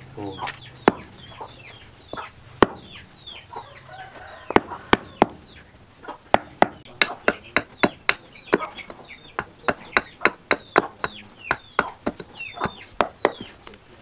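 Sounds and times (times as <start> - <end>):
chickens clucking: 0.1 - 14.0
hatchet chopping wood: 0.5 - 1.2, 2.1 - 3.0, 4.5 - 5.5, 6.3 - 13.6.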